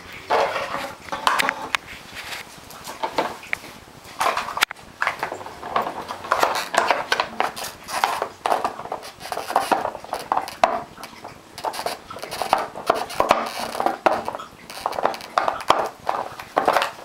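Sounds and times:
plastic bottle crackling: 4.2 - 17.0.

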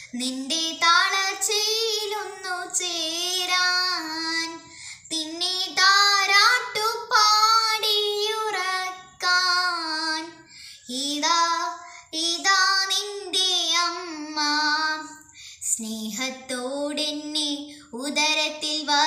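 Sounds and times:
girl singing a hymn: 0.0 - 19.0
girl breathing: 4.6 - 5.1, 10.4 - 10.9, 11.8 - 12.2, 15.2 - 15.7.

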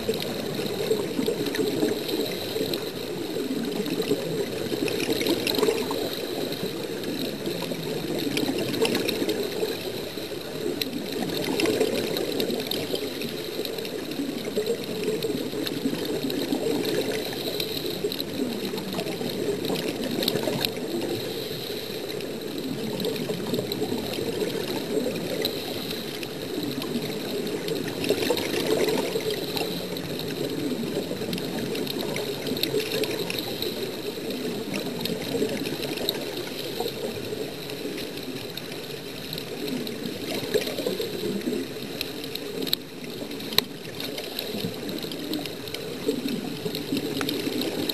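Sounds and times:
underwater bubbling and rushing water: 0.0 - 47.9.

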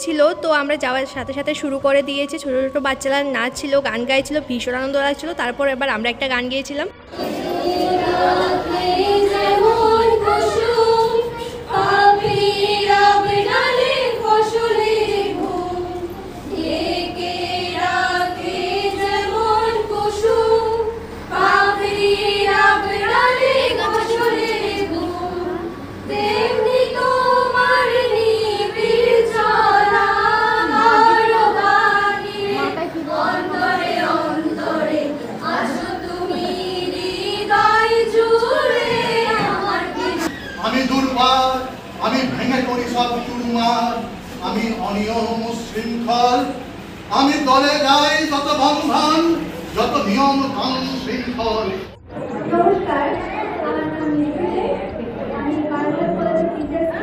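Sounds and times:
women singing in unison: 7.1 - 40.3.

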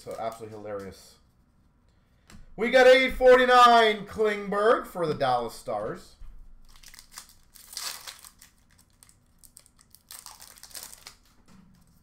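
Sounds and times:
wrapper crinkling as torn open: 6.6 - 11.4.

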